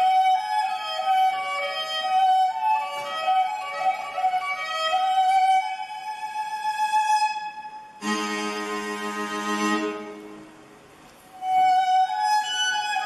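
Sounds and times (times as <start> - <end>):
slow instrumental melody: 7.9 - 12.2.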